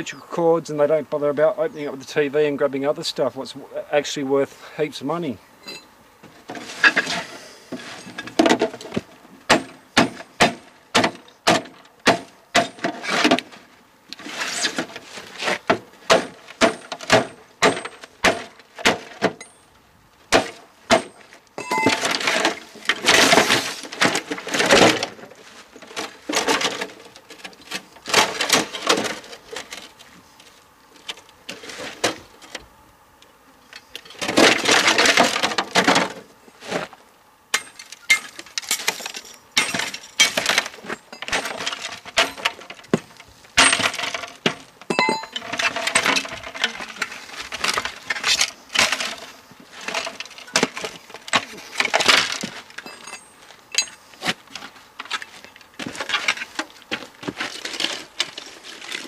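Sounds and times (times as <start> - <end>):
parts scraping: 5.6 - 10.3, 12.6 - 19.7, 20.4 - 32.7, 37.6 - 59.0
metal and plastic parts clattering: 20.4 - 30.1, 33.8 - 36.2, 37.6 - 54.0.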